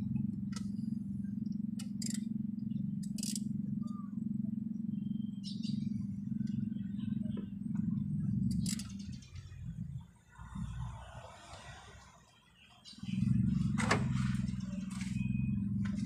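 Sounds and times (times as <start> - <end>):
low mechanical hum: 0.0 - 12.1, 13.0 - 16.0
sharp metallic clicks: 1.8 - 2.3, 3.0 - 3.5, 8.5 - 9.5.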